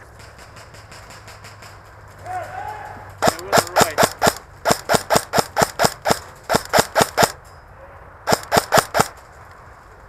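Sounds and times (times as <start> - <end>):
airsoft gun shots: 3.2 - 7.4, 8.3 - 9.2.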